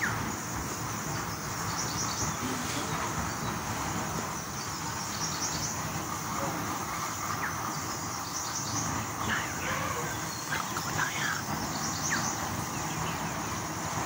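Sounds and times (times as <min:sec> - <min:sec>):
high insect drone: 0:00.0 - 0:14.0
low even hiss: 0:00.0 - 0:14.0
bird chirps: 0:07.0 - 0:13.4.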